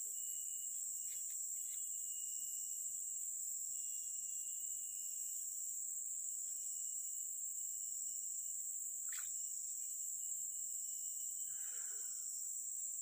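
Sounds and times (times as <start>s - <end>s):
high-pitched insect drone: 0.0s - 5.9s, 9.0s - 13.0s.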